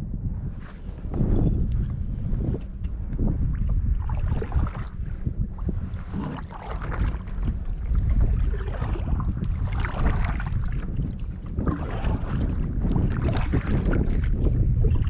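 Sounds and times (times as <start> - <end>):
wind rumble on microphone: 0.0 - 15.0
paddle splashing water: 3.4 - 15.0.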